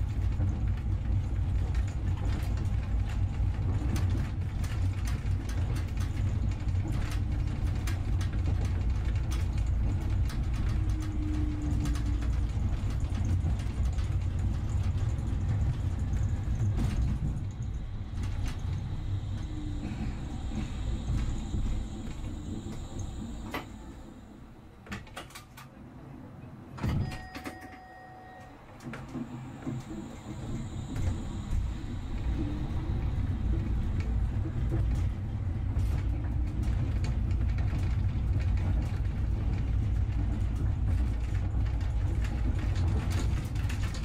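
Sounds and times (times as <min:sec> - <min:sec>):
vehicle running gear rumbling and rattling: 0:00.0 - 0:23.4, 0:29.0 - 0:44.0
faint steady high tones: 0:27.0 - 0:33.4.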